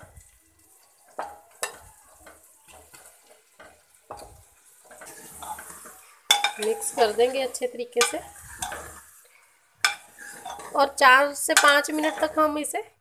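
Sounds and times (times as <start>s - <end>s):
meat sizzling: 0.0s - 13.0s
spoon scraping food off a plate: 1.2s - 9.2s, 9.8s - 10.8s
spoon knocking: 11.5s - 12.4s.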